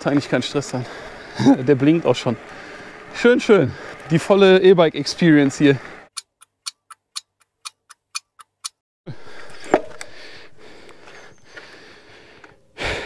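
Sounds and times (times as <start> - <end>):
wind: 0.0 - 13.0
clock ticking: 6.1 - 8.8.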